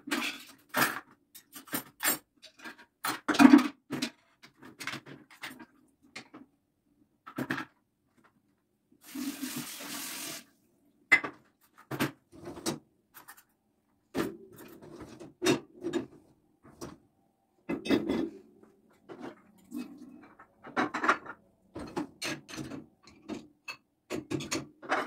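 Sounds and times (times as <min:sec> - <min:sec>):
kitchen tap running: 0:09.0 - 0:10.5
dishes and cutlery clinking: 0:17.7 - 0:18.4, 0:19.1 - 0:25.0.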